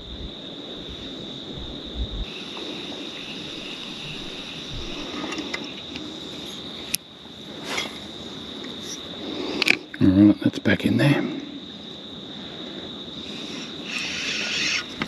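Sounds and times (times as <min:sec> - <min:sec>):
low rumbles: 0:00.0 - 0:06.4
insects trilling: 0:00.0 - 0:15.0.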